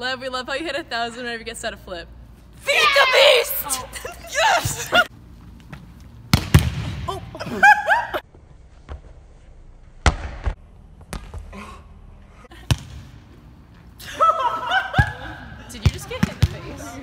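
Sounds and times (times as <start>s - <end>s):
excited high-pitched shouts: 2.6s - 5.1s
ball impacts echoing in gym: 5.7s - 7.3s, 10.0s - 11.8s, 12.5s - 13.4s, 14.9s - 17.0s
volleyball spike smack: 6.3s - 7.0s.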